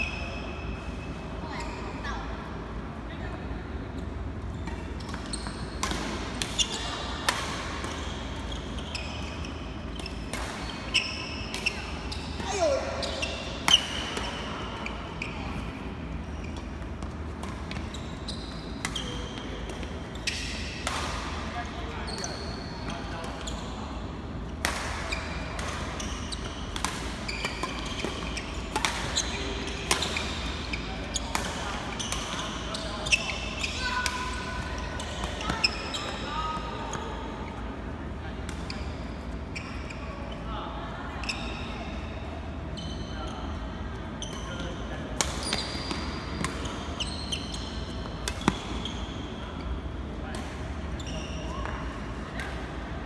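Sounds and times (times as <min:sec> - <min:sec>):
shoes squeaking on floor: 0:04.5 - 0:05.8, 0:07.9 - 0:13.7, 0:16.2 - 0:20.5, 0:26.0 - 0:37.0, 0:45.4 - 0:49.4, 0:51.0 - 0:51.8
rackets hitting shuttlecock: 0:24.6 - 0:30.6.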